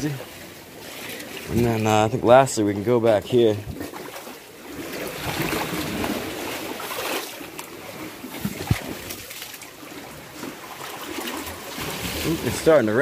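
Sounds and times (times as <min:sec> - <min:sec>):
sea water surging against rocks: 0:00.0 - 0:13.0.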